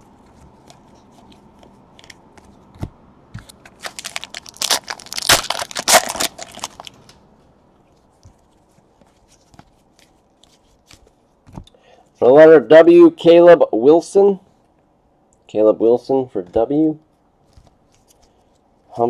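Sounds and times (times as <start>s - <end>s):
cards being handled: 0.2s - 7.1s, 7.9s - 11.7s
card pack wrapper tearing: 3.6s - 7.0s.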